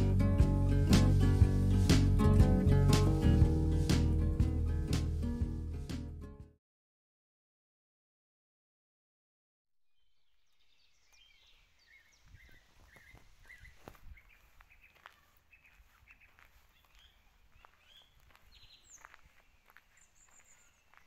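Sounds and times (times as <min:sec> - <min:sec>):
faint birdsong: 0:09.9 - 0:21.0
footsteps on gravel: 0:12.2 - 0:21.0.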